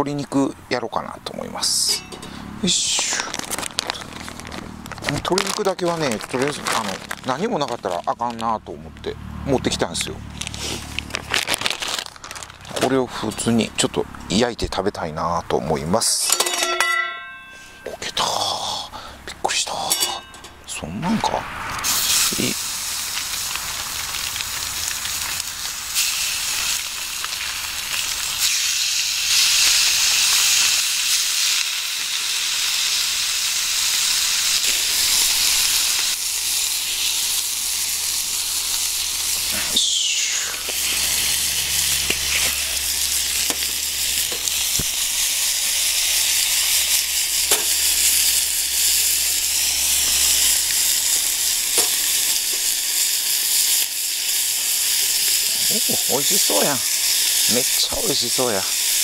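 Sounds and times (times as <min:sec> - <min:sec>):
chicken sizzling in frying pan: 0:01.7 - 0:08.1, 0:21.8 - 0:59.0.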